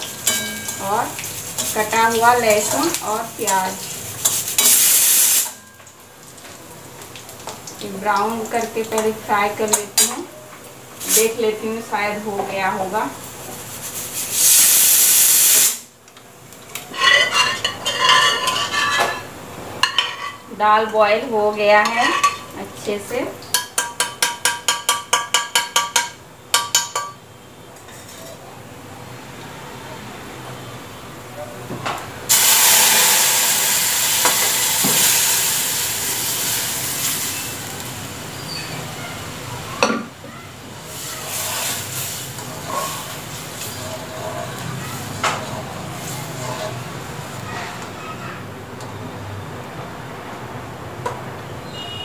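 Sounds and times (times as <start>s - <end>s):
loud sizzle in hot oil: 0.0s - 27.2s, 32.2s - 52.0s
pressure cooker steam hissing: 4.5s - 5.6s, 14.3s - 15.9s, 32.3s - 38.6s
metal ladle scraping pot: 16.9s - 20.4s, 21.8s - 22.5s, 41.0s - 46.9s.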